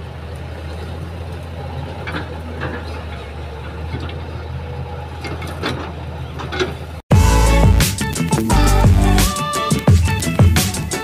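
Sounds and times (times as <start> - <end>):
excavator diesel engine running: 0.0 - 11.0
loud music: 7.1 - 11.0.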